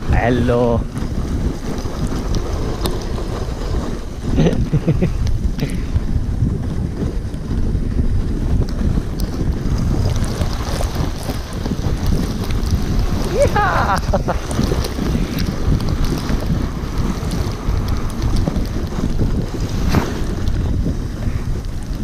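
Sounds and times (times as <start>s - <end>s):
sledge runners scraping snow: 0.0s - 22.0s
wind buffeting microphone: 0.0s - 22.0s.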